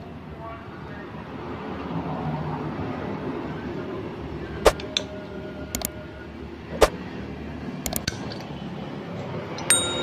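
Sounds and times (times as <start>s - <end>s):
metallic clicks of engine parts: 7.8s - 8.5s.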